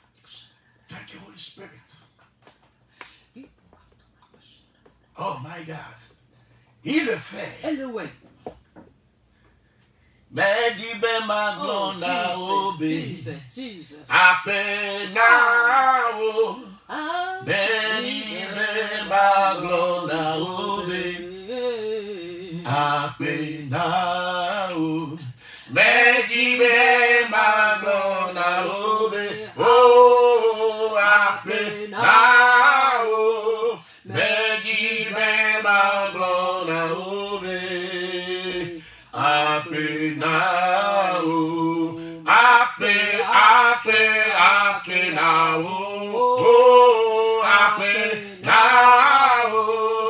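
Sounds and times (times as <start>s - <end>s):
man singing long held notes: 10.4s - 13.2s.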